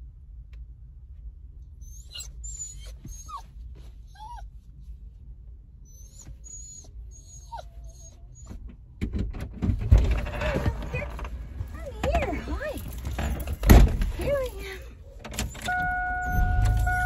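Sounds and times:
small dog whining: 1.8s - 4.5s, 5.9s - 8.6s
knocking and rustling: 8.5s - 14.6s.

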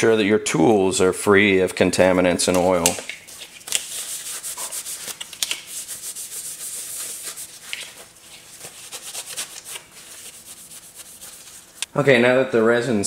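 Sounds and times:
paper towel rubbing on tool: 3.3s - 11.9s.

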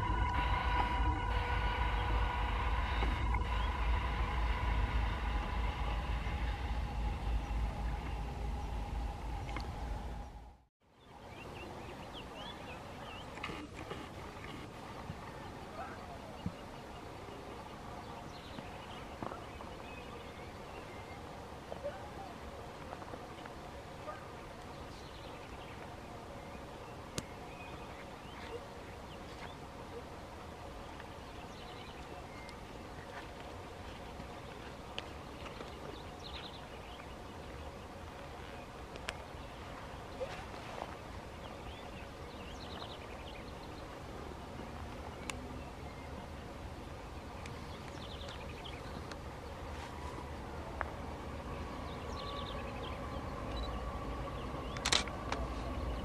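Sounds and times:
locomotive rumbling past: 0.0s - 10.7s, 50.2s - 56.0s
faint steady whine: 0.0s - 56.0s
steady low hiss: 0.0s - 56.0s
bird chirps: 51.9s - 55.0s.

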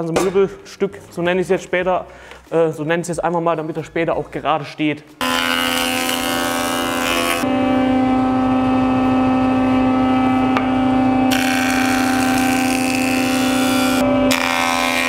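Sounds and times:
jointer machine hum: 5.2s - 15.0s.

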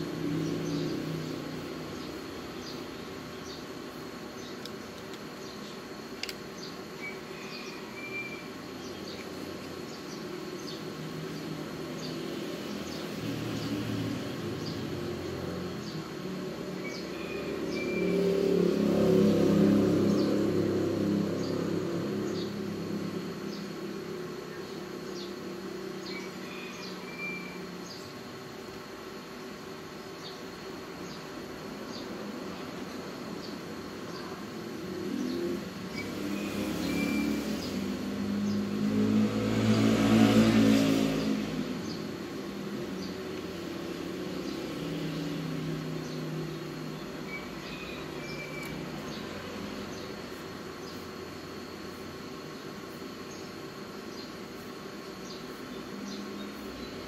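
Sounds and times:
vehicle engine running: 8.7s - 26.1s
vehicle engine passing by: 17.3s - 23.6s, 35.0s - 46.9s.

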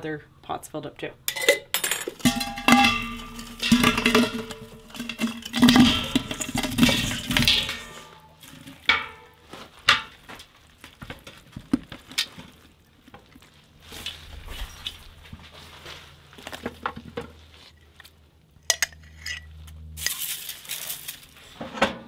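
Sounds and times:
metal clanks and rattling: 1.3s - 10.2s
vegetables tumbling into metal pot: 1.3s - 12.6s, 20.0s - 22.0s.

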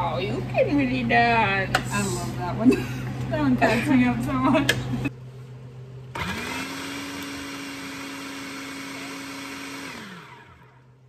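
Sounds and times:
food processor motor whine: 6.1s - 11.0s.

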